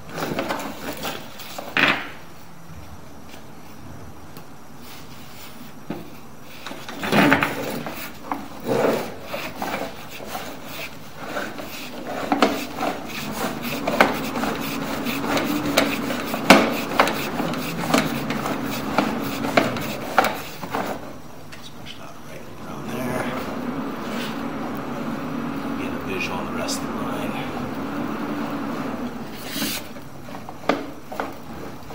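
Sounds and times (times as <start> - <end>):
faint steady hum: 0.0 - 31.9
cable rubbing and scraping in drain: 9.2 - 21.1.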